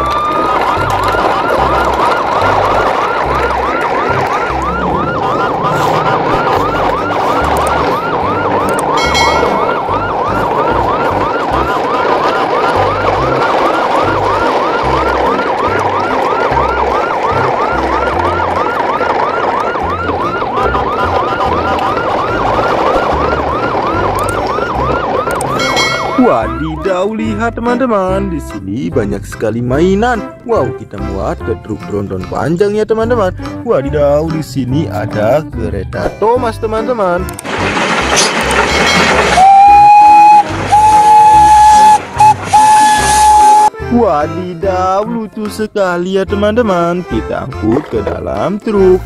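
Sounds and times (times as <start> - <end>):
electronic siren yelping: 0.0 - 27.2, 38.9 - 43.8.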